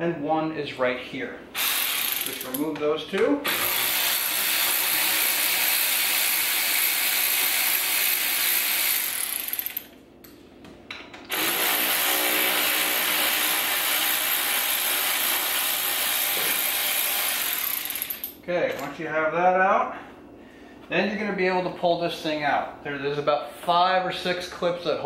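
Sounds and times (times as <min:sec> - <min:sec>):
ratchet wrench ratcheting: 0:01.6 - 0:02.7, 0:03.5 - 0:10.0, 0:15.6 - 0:18.4.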